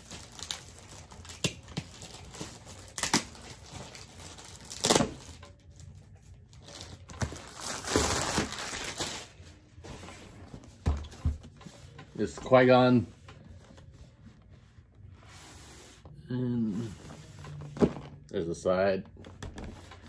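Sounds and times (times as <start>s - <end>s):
plastic wrapping crinkling: 0.0s - 9.7s.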